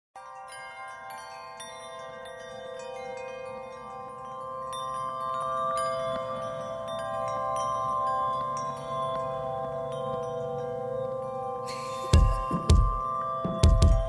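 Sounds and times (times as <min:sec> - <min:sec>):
chime music: 0:00.2 - 0:14.0.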